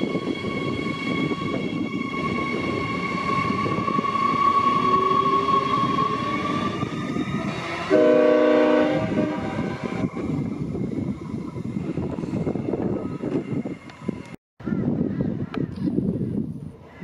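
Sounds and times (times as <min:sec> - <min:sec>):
train horn blast: 0:07.6 - 0:09.8.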